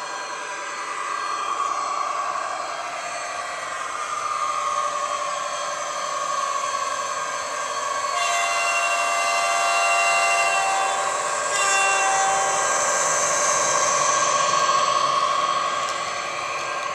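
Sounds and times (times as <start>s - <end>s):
model diesel locomotive engine: 0.0s - 16.9s
multi-tone locomotive horn: 8.1s - 13.2s.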